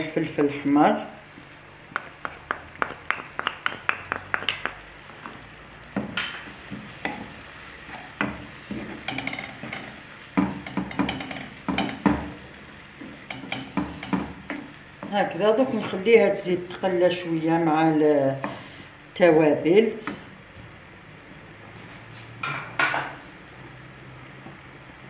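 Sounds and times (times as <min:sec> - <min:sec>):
faint sizzle: 0:00.0 - 0:25.0
spatula tapping bowl rim: 0:01.9 - 0:04.8
spatula scraping pan: 0:06.1 - 0:12.3.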